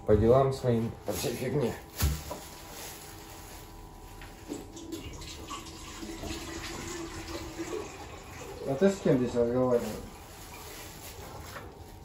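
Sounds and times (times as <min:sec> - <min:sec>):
water running from a tap: 0:04.5 - 0:09.6.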